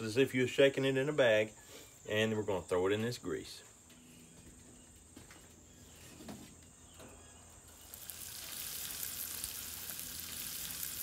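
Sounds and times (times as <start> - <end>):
meat sizzling in grease: 7.8 - 11.0.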